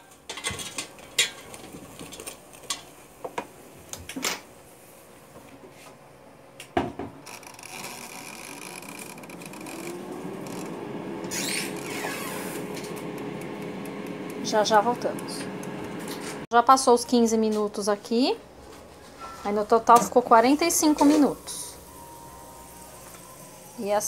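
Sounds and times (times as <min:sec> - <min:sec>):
air fryer basket clattering: 0:00.0 - 0:02.9
air fryer fan whirring: 0:00.0 - 0:16.4, 0:18.0 - 0:24.0.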